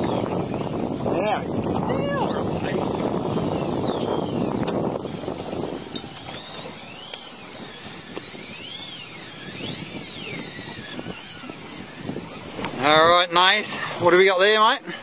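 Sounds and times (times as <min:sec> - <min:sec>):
wind and water rushing: 0:00.0 - 0:15.0
fly reel whining: 0:02.1 - 0:13.8.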